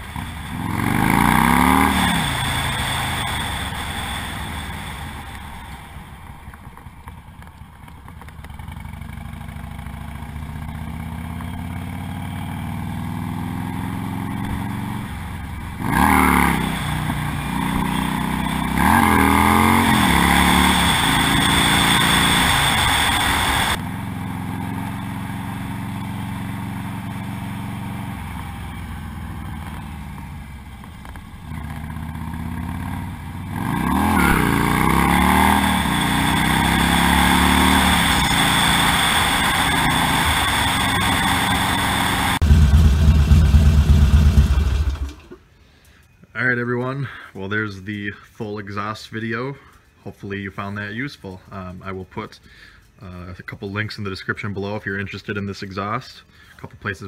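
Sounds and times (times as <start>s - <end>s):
motorcycle engine revving: 0.0s - 45.4s.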